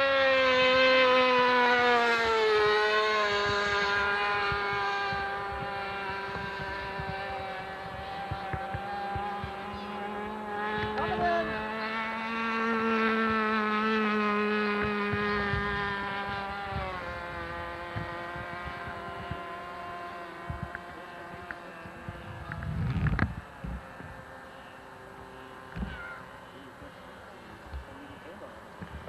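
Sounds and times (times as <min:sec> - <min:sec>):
model airplane engine buzzing: 0:00.0 - 0:29.0.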